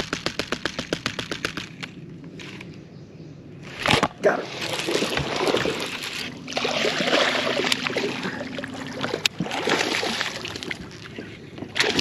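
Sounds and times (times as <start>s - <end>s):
steady low hum: 0.0s - 12.0s
water splashing and sloshing: 3.7s - 12.0s.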